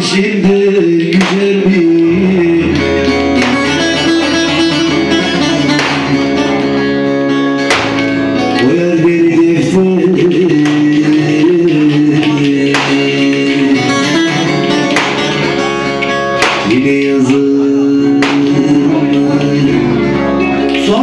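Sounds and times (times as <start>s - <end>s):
keyboard: 0.0s - 21.0s
long-necked lute melody: 2.1s - 8.6s, 12.2s - 16.6s.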